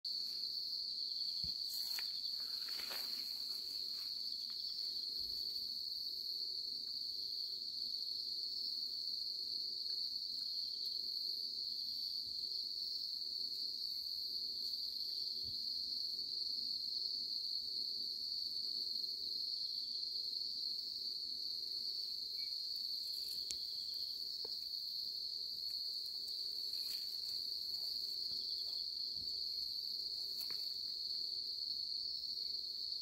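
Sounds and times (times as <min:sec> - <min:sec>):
crickets chirring: 0:00.1 - 0:33.0
faint rustles: 0:01.6 - 0:04.3.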